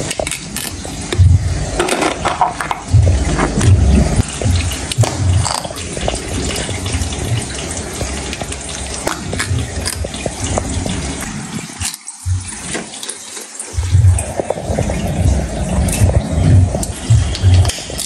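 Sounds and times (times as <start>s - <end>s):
fish crunching shells: 0.0s - 3.8s, 4.8s - 6.4s, 8.0s - 10.6s, 11.6s - 13.7s
aquarium water noise: 0.0s - 18.0s.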